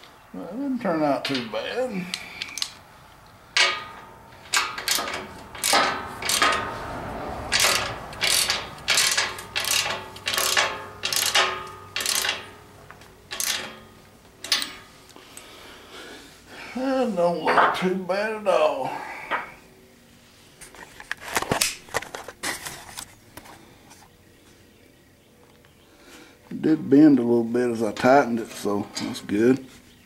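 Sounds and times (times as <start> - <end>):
ratchet wrench clicking: 3.6 - 6.8, 7.4 - 12.6, 13.3 - 14.8.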